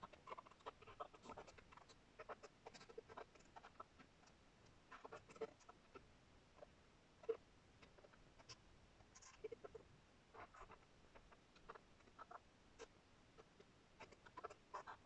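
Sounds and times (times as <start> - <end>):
garbled tv audio: 0.0 - 15.0.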